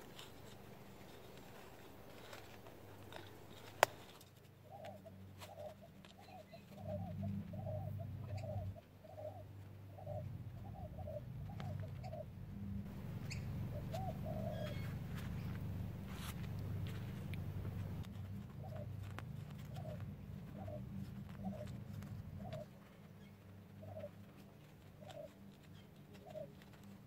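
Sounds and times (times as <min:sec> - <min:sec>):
dove cooing: 0:00.0 - 0:27.0
low rumble: 0:09.8 - 0:22.6.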